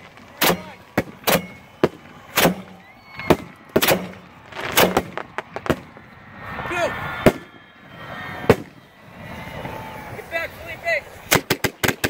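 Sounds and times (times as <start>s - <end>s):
firework mortar launches: 0.0s - 12.0s.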